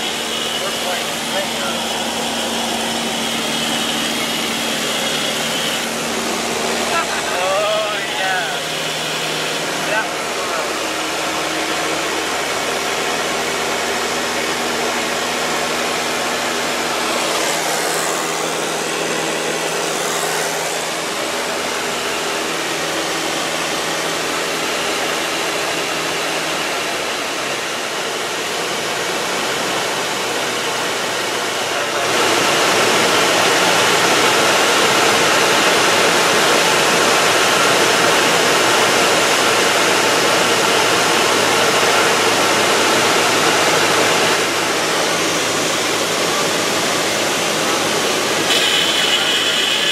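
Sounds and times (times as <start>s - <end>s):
airplane engine drone in cabin: 43.5s - 49.9s
rushing noise: 48.1s - 49.9s.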